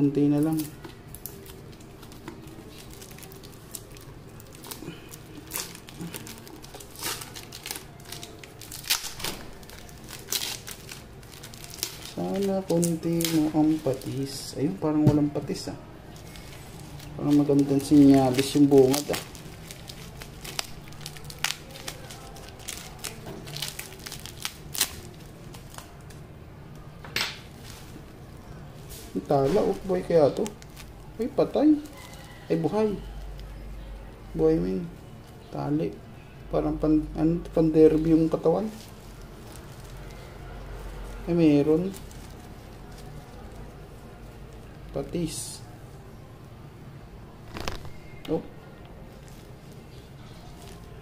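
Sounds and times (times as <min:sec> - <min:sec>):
packing tape crinkling: 0:00.3 - 0:14.5, 0:16.1 - 0:26.2, 0:29.4 - 0:32.4, 0:47.4 - 0:48.4.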